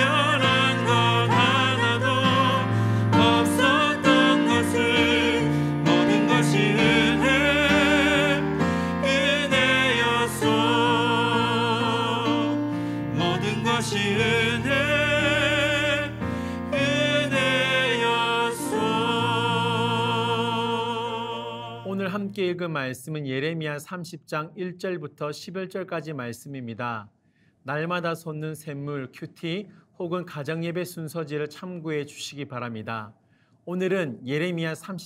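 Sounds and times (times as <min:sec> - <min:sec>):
sustained instrumental accompaniment: 0:00.0 - 0:21.9
person singing with vibrato: 0:00.0 - 0:22.2.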